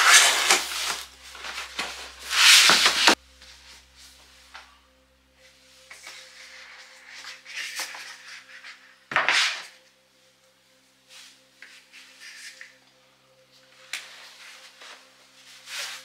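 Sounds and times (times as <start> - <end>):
cardboard lid sliding and rubbing: 0.0 - 3.2
foam sheet rustling: 0.0 - 3.2.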